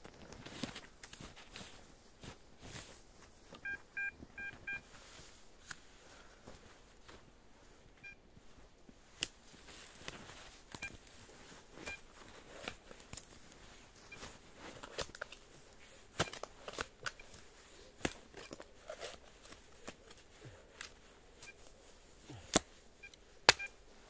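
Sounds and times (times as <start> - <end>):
metal detector beeps: 3.6 - 4.8, 11.8 - 12.1
digging clicks and scraping: 9.2 - 23.8.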